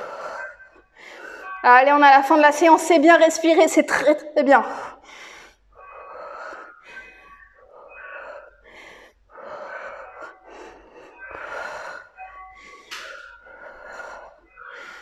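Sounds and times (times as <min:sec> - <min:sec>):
woman breathing hard: 0:00.0 - 0:01.6, 0:04.7 - 0:15.0.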